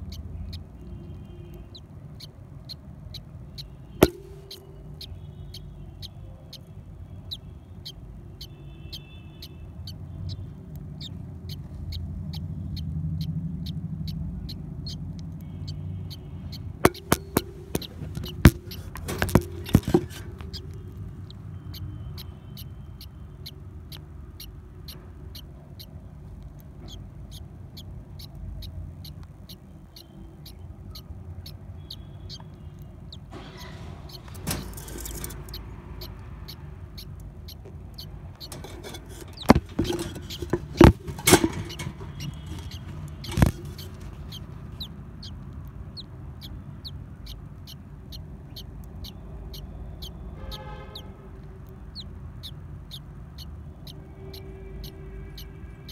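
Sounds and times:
budgerigars chirping: 0:00.0 - 0:26.0, 0:26.8 - 0:51.1, 0:51.9 - 0:55.9
steady ticking clicks: 0:01.6 - 0:06.7, 0:09.9 - 0:22.7
handling noise: 0:04.0 - 0:04.8, 0:16.8 - 0:20.8, 0:38.5 - 0:44.6
sharp knocks: 0:04.0 - 0:04.8, 0:16.9 - 0:20.7, 0:38.5 - 0:44.1.

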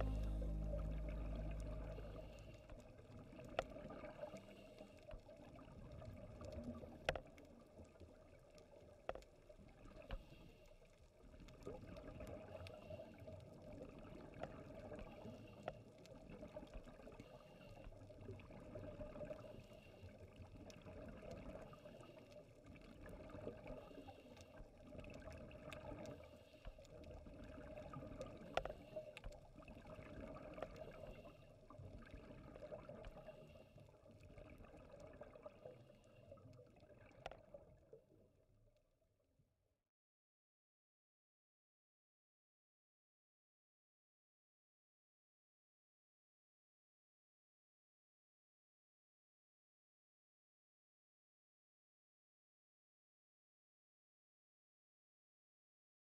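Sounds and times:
underwater water noise: 0:00.0 - 0:38.7.

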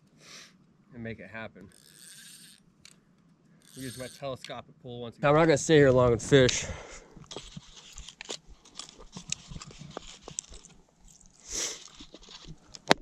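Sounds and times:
rustling: 0:07.2 - 0:13.0.

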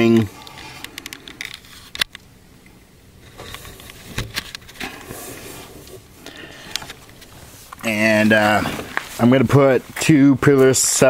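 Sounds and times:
soft rustling: 0:03.2 - 0:11.0.

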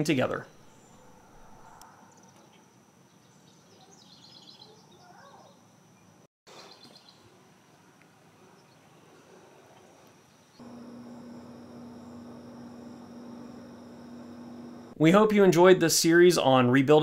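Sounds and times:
birds chirping: 0:10.4 - 0:14.9.

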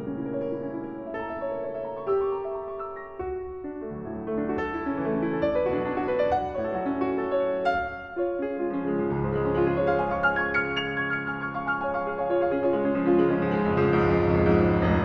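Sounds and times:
solo piano arpeggios: 0:00.0 - 0:15.0
deep sustained piano bass: 0:08.2 - 0:15.0.

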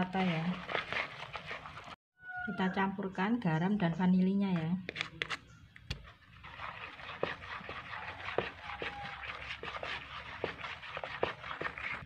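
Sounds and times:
spatula stirring wet batter: 0:00.0 - 0:02.0, 0:03.8 - 0:12.0
spatula knocking bowl: 0:07.1 - 0:12.0.

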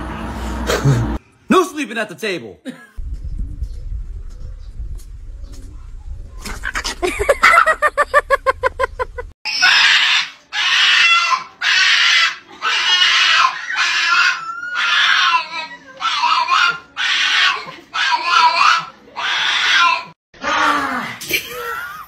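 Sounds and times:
dog screaming in harsh squeals: 0:09.4 - 0:20.2.

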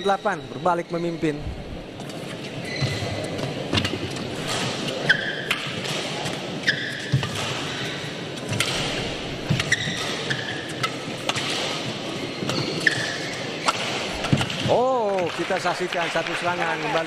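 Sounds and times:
shoes squeaking on court: 0:00.0 - 0:14.4
racket striking shuttlecock: 0:03.1 - 0:14.8.

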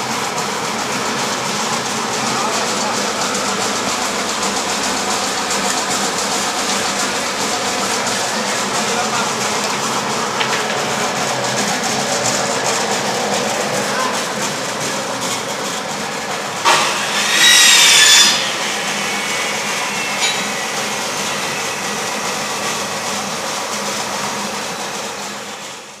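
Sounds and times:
grating screech: 0:16.7 - 0:23.2.

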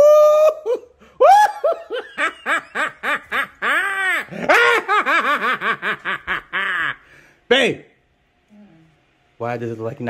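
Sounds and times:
person giggling: 0:00.0 - 0:07.0.

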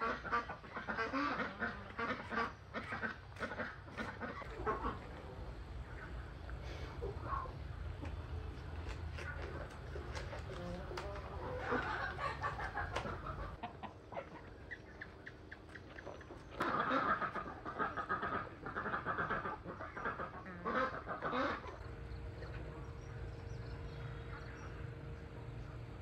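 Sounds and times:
poultry calling: 0:00.0 - 0:25.9
faint steady hum: 0:00.0 - 0:26.0.

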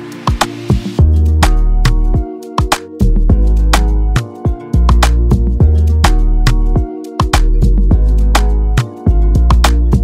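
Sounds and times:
music with drum hits: 0:00.0 - 0:06.2
deep bass line: 0:01.0 - 0:02.2, 0:03.0 - 0:10.0.

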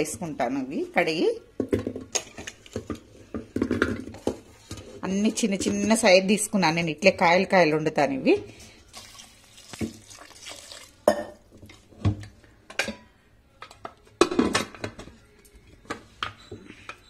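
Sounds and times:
water pouring into pot: 0:08.8 - 0:11.9
metal pot and lid clanking: 0:12.7 - 0:13.1.

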